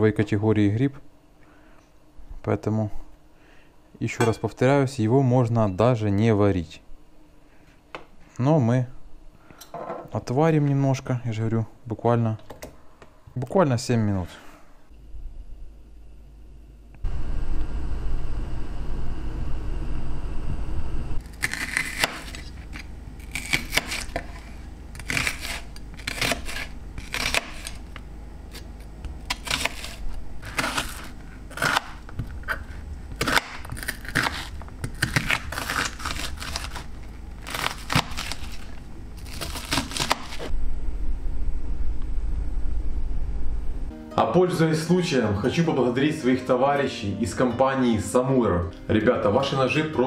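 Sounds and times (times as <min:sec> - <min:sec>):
steady low rumble: 0:15.0 - 0:21.2, 0:40.5 - 0:44.0.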